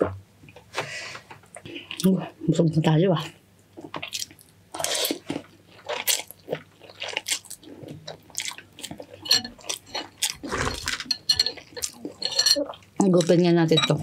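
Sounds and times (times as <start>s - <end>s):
wet chewing and slurping: 4.0s - 13.3s.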